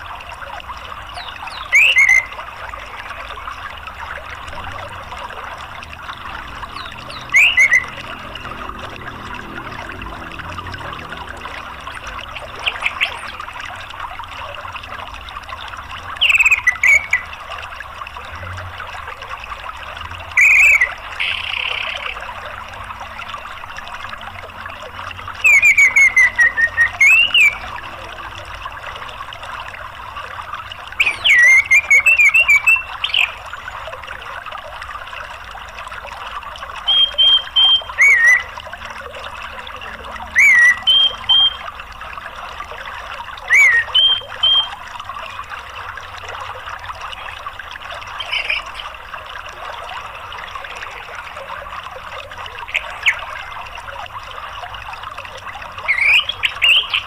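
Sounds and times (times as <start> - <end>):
flowing water: 0.0 - 57.0
thrush whistled song: 1.2 - 2.4, 6.8 - 8.5, 16.2 - 17.3, 20.3 - 22.1, 25.4 - 27.7, 31.0 - 33.5, 36.8 - 38.6, 39.8 - 41.8, 43.4 - 44.8, 55.8 - 57.0.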